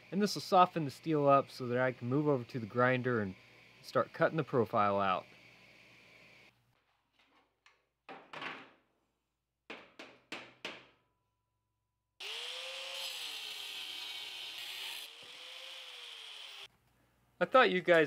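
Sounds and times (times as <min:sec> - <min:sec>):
angle grinder wire wheel on steel: 0:12.2 - 0:16.7.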